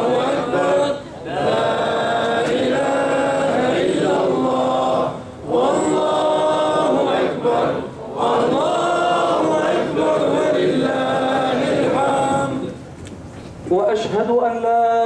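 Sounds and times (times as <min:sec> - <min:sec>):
man chanting melodically: 0:13.7 - 0:15.0.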